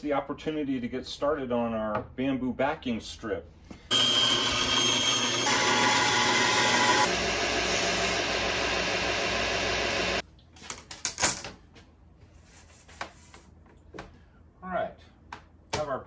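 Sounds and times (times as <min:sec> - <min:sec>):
bandsaw cutting: 0:03.9 - 0:10.2.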